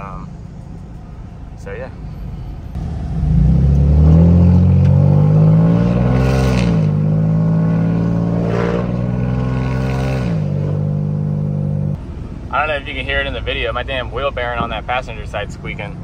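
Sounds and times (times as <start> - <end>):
truck exhaust accelerating: 0.0 - 16.0.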